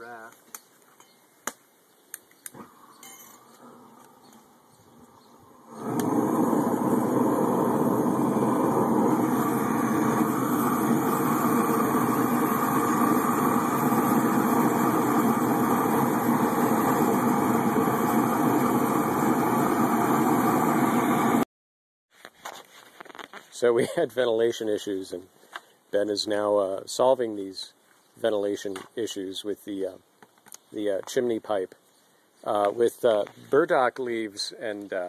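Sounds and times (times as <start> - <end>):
heating tool roaring: 2.5 - 21.4.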